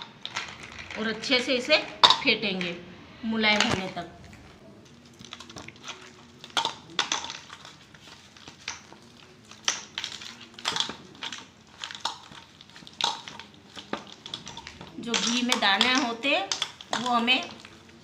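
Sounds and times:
ice cubes knocking on steel: 15.1 - 17.3.

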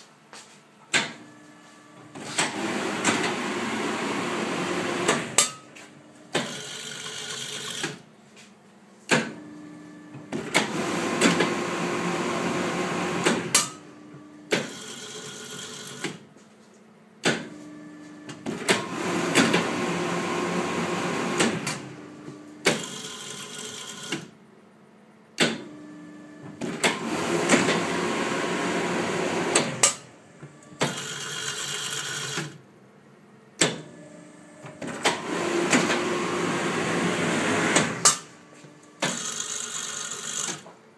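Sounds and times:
faint machine hum: 0.0 - 40.9
shrink-wrapping machine running: 2.1 - 5.7, 18.4 - 24.2, 26.6 - 32.6, 34.0 - 40.7.

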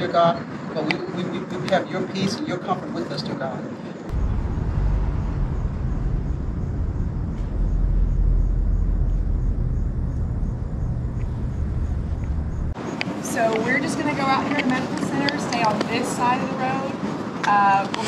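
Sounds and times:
road traffic rumble: 4.1 - 18.0.

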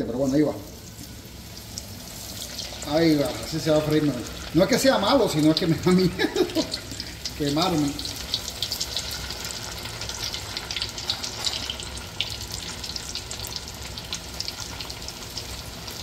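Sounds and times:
fish fillets frying in oil: 0.0 - 16.0
oil sizzling with crackling pops: 0.0 - 16.0.

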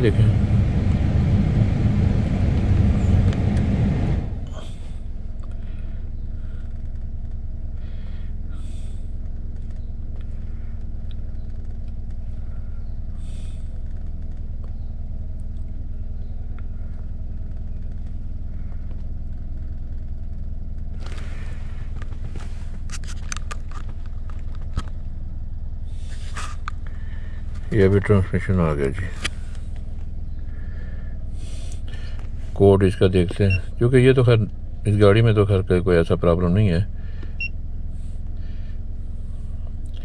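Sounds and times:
rushing noise: 0.0 - 4.6
car idling hum: 0.0 - 40.0
faint clicks and rustles: 6.6 - 7.8, 9.1 - 25.2.

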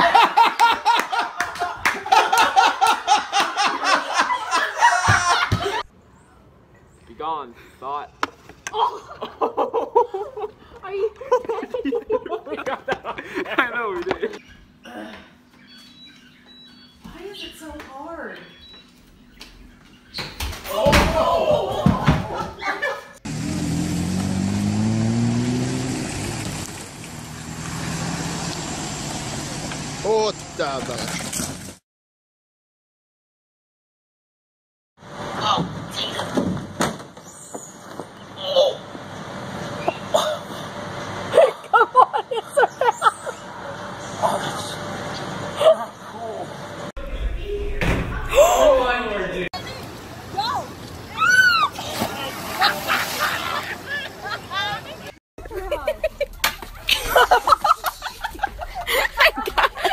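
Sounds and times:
hard laughter: 0.0 - 5.8, 41.3 - 43.5, 52.0 - 59.9
vehicle engine accelerating: 23.2 - 30.5
low thump: 47.0 - 48.5.

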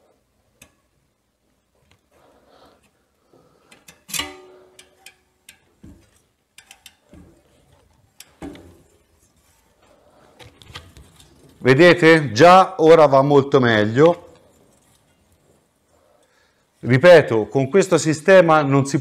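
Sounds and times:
metal clicks and taps: 3.7 - 7.3.

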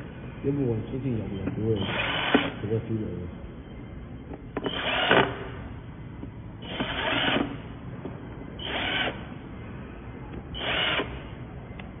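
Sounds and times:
cordless drill driving screws: 1.8 - 2.5, 4.6 - 5.3, 6.6 - 7.5, 10.6 - 11.1.

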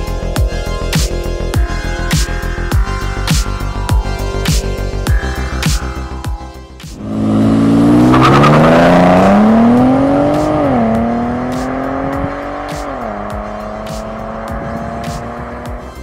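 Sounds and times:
car engine accelerating: 4.8 - 16.0.

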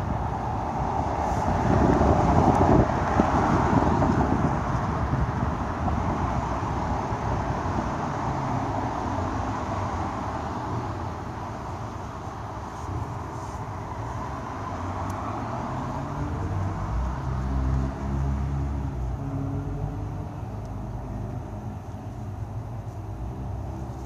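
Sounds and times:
distant cars: 0.0 - 24.0
car passing close by: 13.4 - 21.7.

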